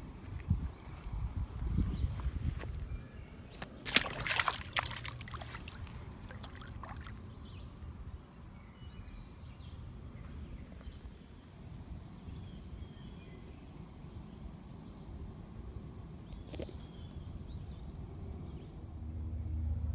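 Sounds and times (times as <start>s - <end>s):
fish splashing in water: 3.5s - 7.5s.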